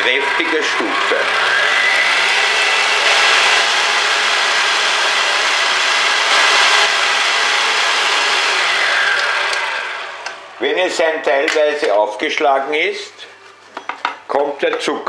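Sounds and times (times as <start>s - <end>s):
stand mixer whirring: 0.0s - 10.7s.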